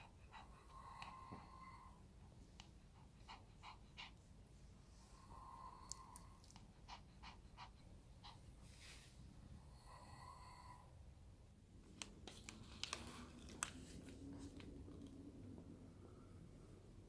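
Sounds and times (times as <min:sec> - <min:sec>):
small dog panting: 0:00.0 - 0:08.8.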